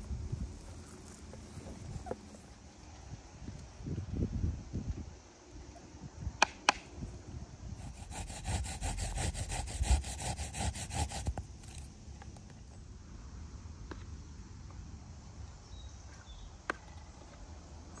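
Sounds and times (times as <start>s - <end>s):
sharp clicks: 6.4s - 6.9s
garlic rasping on a hand grater: 7.8s - 11.4s.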